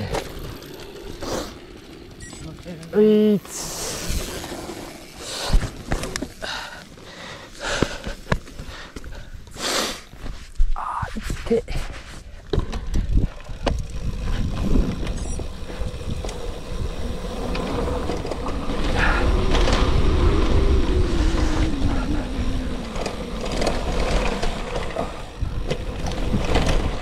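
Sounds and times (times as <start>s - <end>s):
bike rattling and knocking: 0.0s - 9.4s, 12.3s - 27.0s
wind rumble on microphone: 12.6s - 27.0s
faint humming tone: 14.3s - 23.8s.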